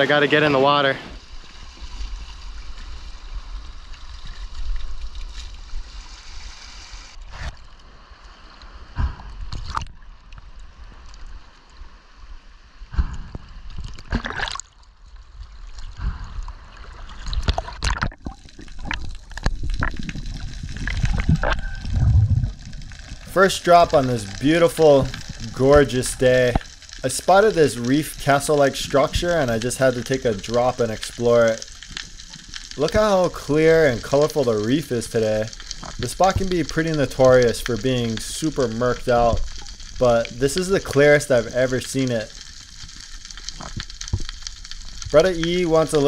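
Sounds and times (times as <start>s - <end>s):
water sloshing and trickling: 0.0s - 6.5s, 13.5s - 34.8s
low underwater rumble: 8.7s - 27.0s
sharp splashes and knocks: 8.9s - 10.4s, 13.0s - 23.3s.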